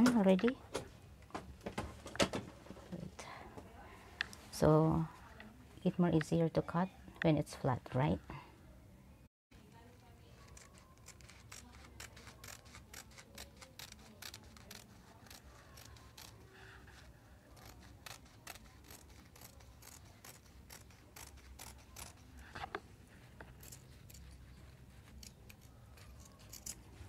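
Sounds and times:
scissors snipping fabric: 10.4s - 27.0s.

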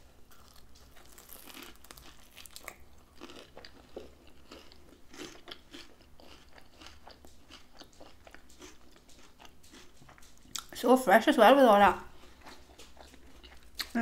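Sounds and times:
person crunching crispy food: 0.2s - 10.7s.

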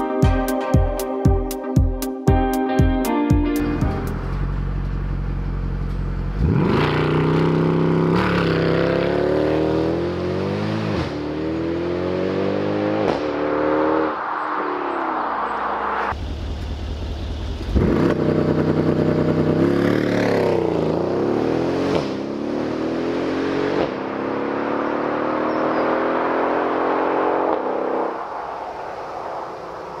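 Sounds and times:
car engine idling: 3.7s - 6.4s, 15.5s - 19.6s
car engine revving and upshifting: 4.0s - 16.2s, 17.8s - 28.4s.

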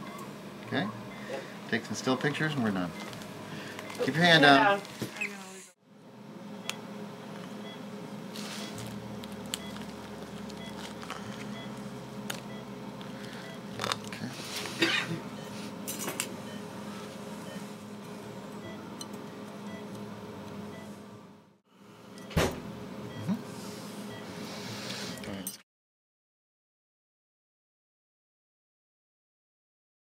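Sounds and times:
steady low hum: 0.0s - 4.8s, 5.4s - 25.5s.

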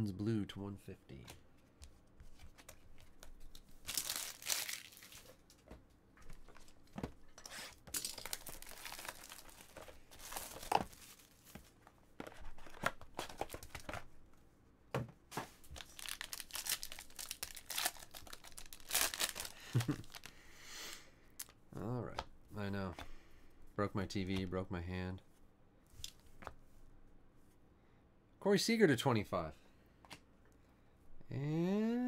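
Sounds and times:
packaging ripping and rustling: 3.8s - 5.4s, 8.0s - 11.7s, 15.7s - 20.3s
foil pack crinkling: 3.8s - 5.5s, 8.0s - 11.7s, 15.7s - 20.3s.

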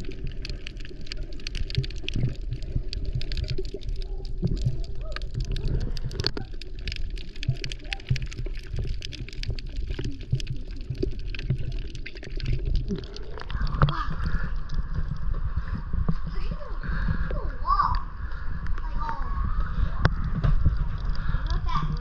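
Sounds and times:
sharp crackling clicks: 0.0s - 15.4s
muffled underwater rumble: 0.0s - 22.0s
water sloshing and splashing: 0.0s - 22.0s.

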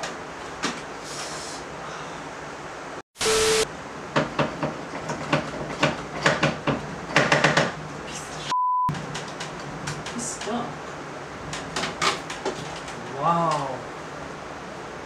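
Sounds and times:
short steady beep: 8.5s - 8.9s
objects and cables knocking: 11.5s - 13.0s.

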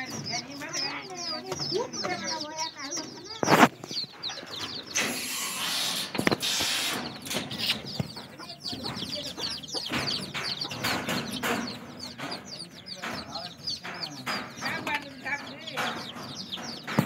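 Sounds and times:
chickens clucking: 0.0s - 17.0s
small birds chirping: 0.0s - 17.0s
rustling noise: 3.3s - 4.1s
sharp knocks: 3.3s - 17.0s.

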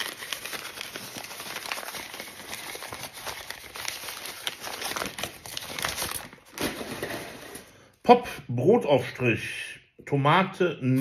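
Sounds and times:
paper crinkling and rustling: 0.0s - 7.7s.

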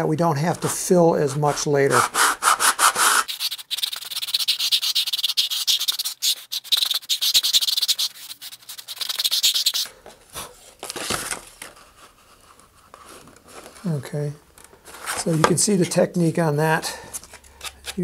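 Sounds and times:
scratchy sanding strokes: 0.7s - 9.9s.

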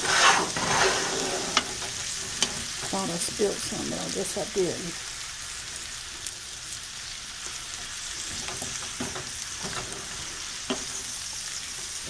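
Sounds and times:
wooden spoon scraping a pan: 0.0s - 3.2s
food sizzling in a skillet: 0.0s - 12.0s.

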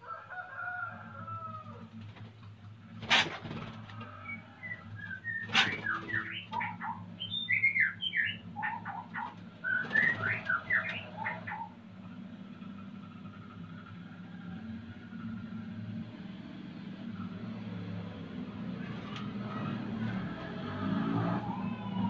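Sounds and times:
bird singing whistled notes: 4.2s - 11.8s.

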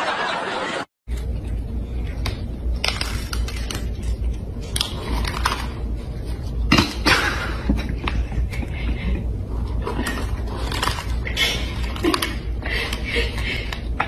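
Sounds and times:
cats crunching dry kibble: 1.1s - 6.9s, 9.5s - 14.0s
low steady hum: 1.1s - 14.0s.

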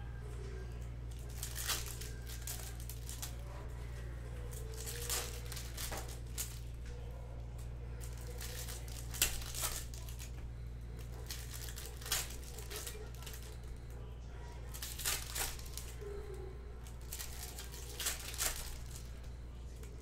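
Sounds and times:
steady low hum: 0.0s - 20.0s
wrappers being torn and crinkled: 1.1s - 3.7s, 4.4s - 6.9s, 8.0s - 14.0s, 14.6s - 20.0s.

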